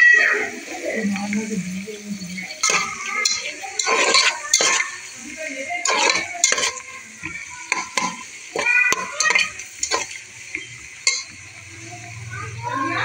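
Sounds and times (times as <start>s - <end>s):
onions sizzling in oil: 0.0s - 13.0s
metal spatula scraping pot: 2.3s - 11.4s.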